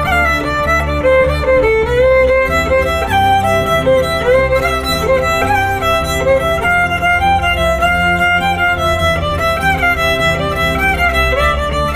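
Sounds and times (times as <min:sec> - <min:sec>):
fiddle melody: 0:00.0 - 0:11.9
low musical backing: 0:00.0 - 0:11.9.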